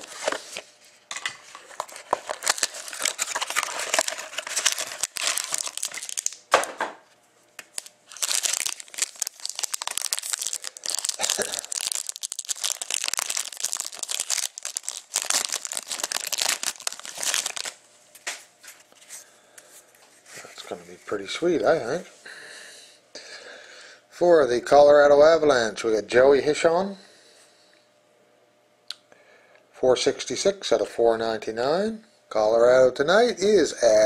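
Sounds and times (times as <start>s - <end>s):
foil pack crinkling and tearing: 0.0s - 0.6s, 1.5s - 6.7s, 7.6s - 17.8s.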